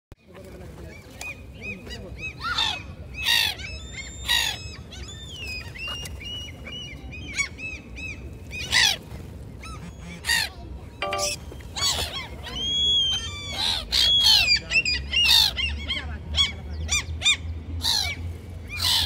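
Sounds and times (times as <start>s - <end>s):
gulls screeching and calling: 1.6s - 9.0s.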